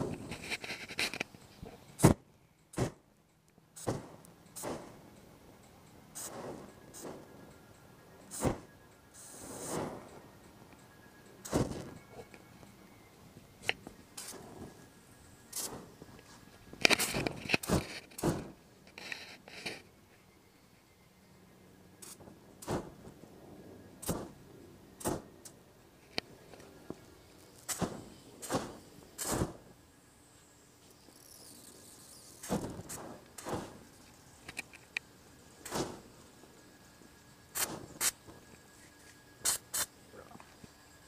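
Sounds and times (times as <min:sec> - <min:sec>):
flames whooshing: 0:03.8 - 0:05.0, 0:06.1 - 0:07.5, 0:08.3 - 0:10.3, 0:11.4 - 0:12.0, 0:14.1 - 0:14.9, 0:15.5 - 0:18.6, 0:22.0 - 0:25.5, 0:26.8 - 0:29.8, 0:32.2 - 0:34.2, 0:35.6 - 0:36.5, 0:37.5 - 0:38.2.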